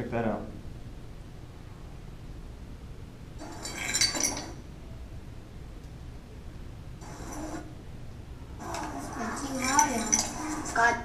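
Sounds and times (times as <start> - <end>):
low steady hum: 0.0 - 11.0
glass jar clinking: 3.6 - 4.6.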